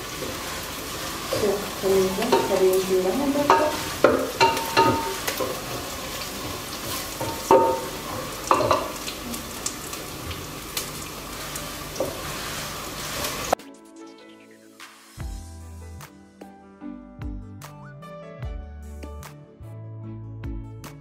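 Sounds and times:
onions sizzling in hot oil: 0.0s - 13.6s
wooden spoon scraping a pot: 3.5s - 8.9s.

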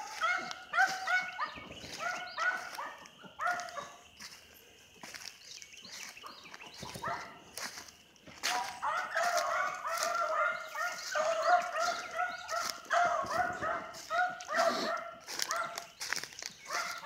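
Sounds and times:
hounds baying: 0.0s - 4.4s, 6.0s - 7.8s, 8.4s - 17.0s.

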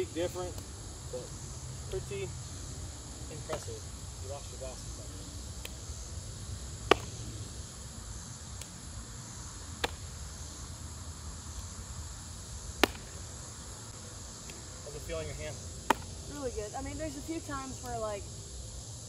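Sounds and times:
high insect buzz: 0.0s - 19.0s
baseball smacking into glove: 6.8s - 7.2s, 9.8s - 10.1s, 12.8s - 13.2s, 15.8s - 16.2s.

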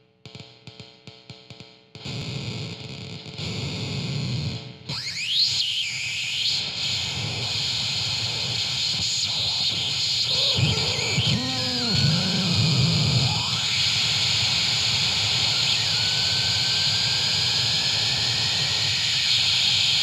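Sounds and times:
harsh distorted noise music: 1.4s - 20.0s.

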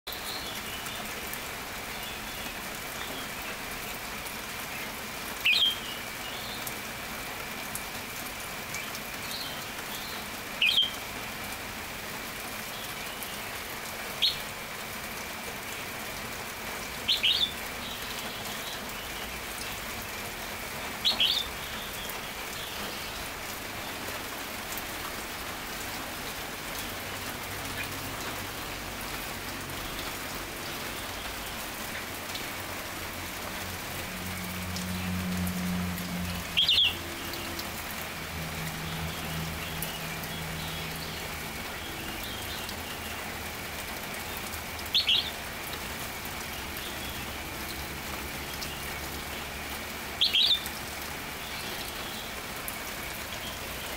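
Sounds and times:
steady rain: 0.1s - 53.9s
bird calls: 17.0s - 19.4s, 44.3s - 45.4s, 50.2s - 50.8s.

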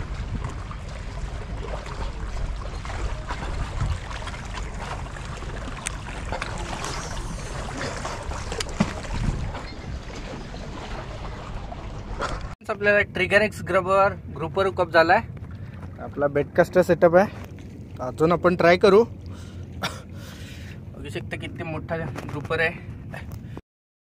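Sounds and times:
water lapping against rocks: 0.0s - 12.6s
wind rumbling on microphone: 0.0s - 23.6s.

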